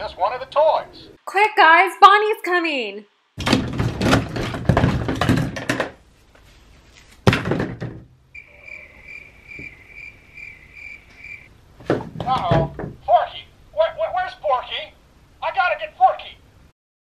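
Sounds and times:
plastic toys clattering: 3.4s - 6.0s
thud: 7.2s - 8.1s.

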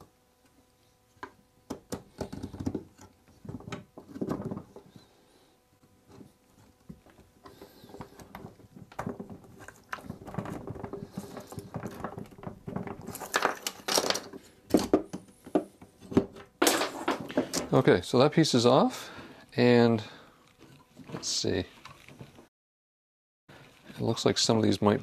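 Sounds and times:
wooden wheel clicking and creaking: 7.5s - 14.1s.

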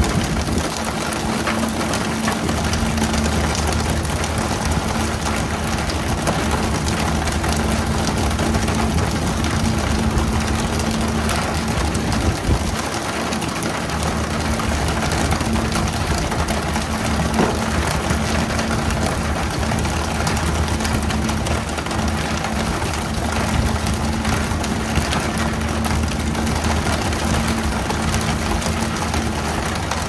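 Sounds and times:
boat engine humming: 0.0s - 30.0s.

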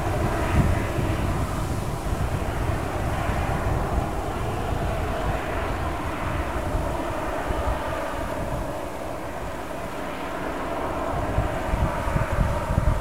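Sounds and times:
jet engines whining at low thrust: 0.0s - 13.0s.

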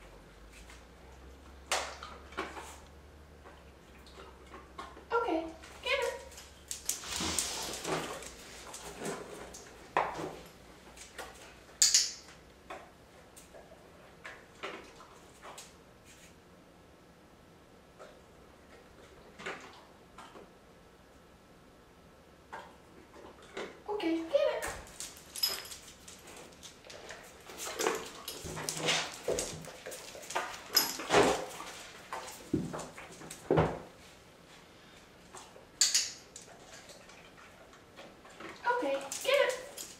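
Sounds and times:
dog moving on tile floor: 6.0s - 12.4s, 24.6s - 34.2s, 38.3s - 39.9s.

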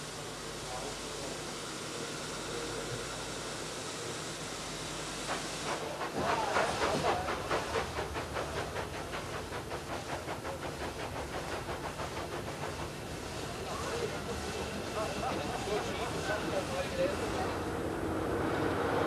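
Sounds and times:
steam hissing: 0.0s - 19.0s
steam locomotive exhaust chuffs: 4.8s - 18.3s.

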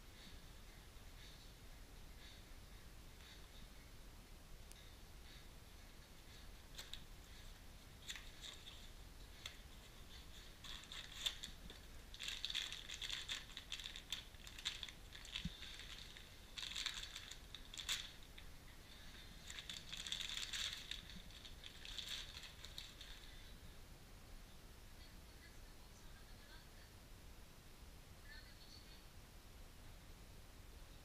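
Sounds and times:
plastic bags rustling: 8.0s - 23.5s.

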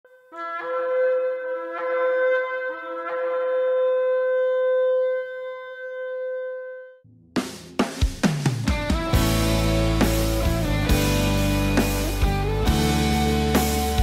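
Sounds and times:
shofar long blast: 0.1s - 7.0s.

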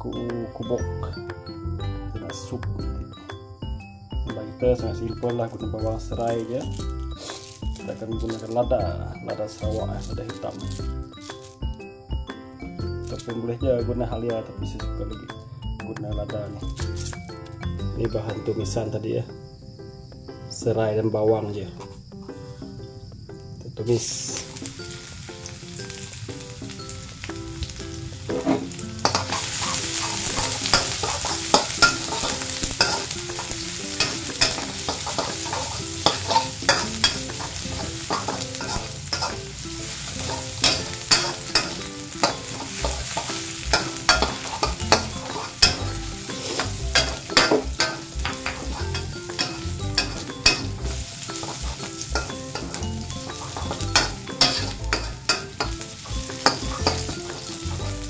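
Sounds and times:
food sizzling in hot oil: 6.1s - 11.9s, 24.0s - 58.0s
metal spatula scraping pan: 28.3s - 58.0s.

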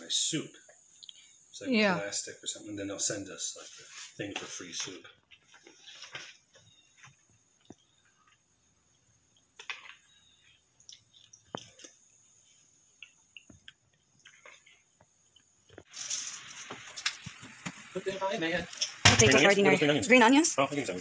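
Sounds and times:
faint chewing: 4.9s - 17.4s.

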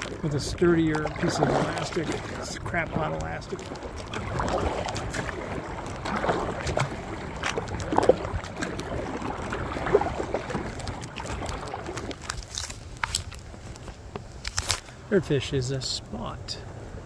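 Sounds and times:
water splashing against kayak: 0.0s - 15.0s.

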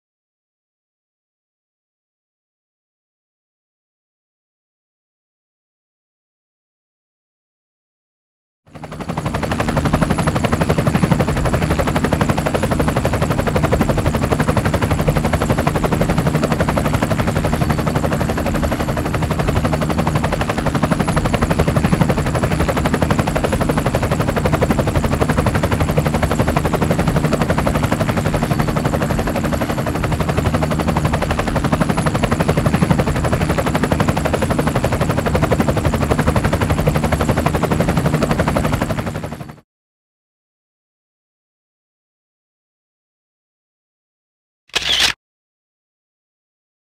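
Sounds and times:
helicopter rotor chop: 8.7s - 39.6s, 44.7s - 45.2s.

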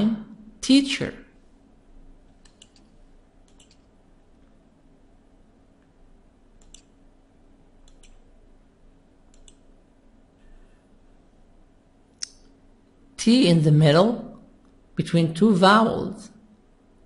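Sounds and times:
faint steady hum: 0.0s - 17.0s
computer mouse clicks: 2.3s - 3.9s, 6.6s - 7.0s, 7.8s - 8.3s, 9.3s - 9.7s.

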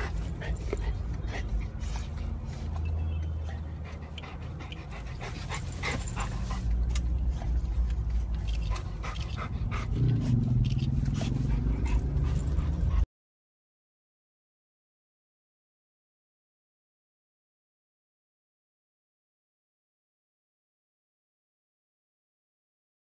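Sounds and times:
dog panting: 0.0s - 13.1s.

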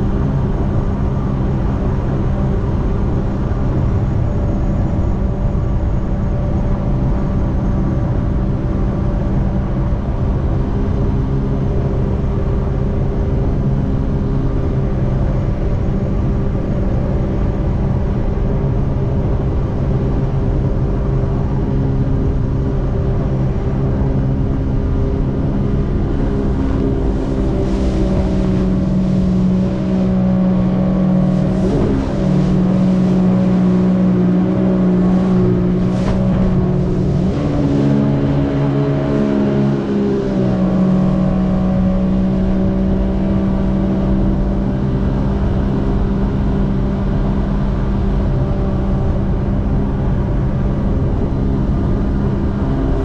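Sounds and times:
jet ski engine running: 0.0s - 53.0s
water rushing past hull: 25.2s - 42.3s.

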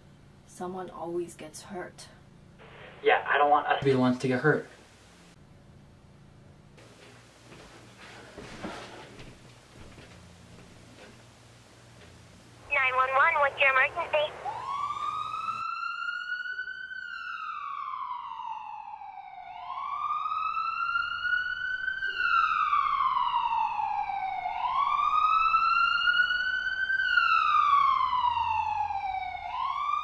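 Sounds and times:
police siren wailing: 12.6s - 30.0s.

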